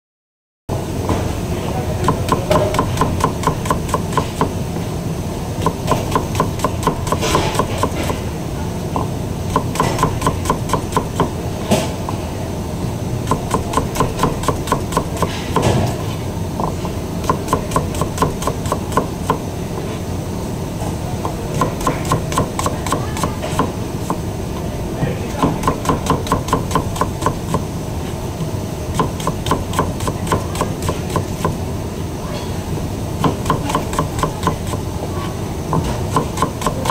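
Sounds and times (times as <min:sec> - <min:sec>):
knife chopping on cutting board: 0:02.0 - 0:04.6, 0:05.6 - 0:08.2, 0:09.0 - 0:12.2, 0:13.2 - 0:19.4, 0:21.2 - 0:24.2, 0:25.3 - 0:27.7, 0:29.0 - 0:31.6, 0:33.2 - 0:34.8, 0:35.7 - 0:36.9.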